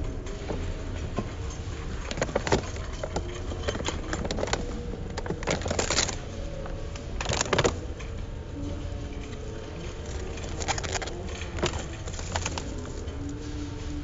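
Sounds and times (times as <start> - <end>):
plastic film crinkling: 2.1 - 7.8, 10.0 - 13.5.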